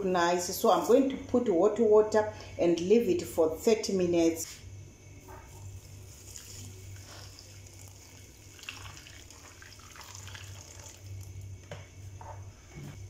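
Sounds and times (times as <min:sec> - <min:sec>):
low steady hum: 0:00.0 - 0:13.0
hot water pouring into metal bowl: 0:05.8 - 0:11.4.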